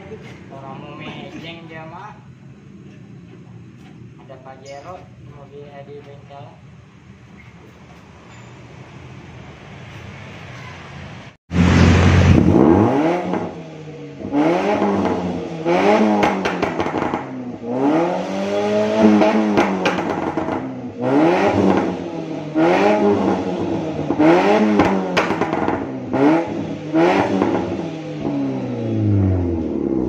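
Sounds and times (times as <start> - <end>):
car engine revving: 11.5 - 30.0.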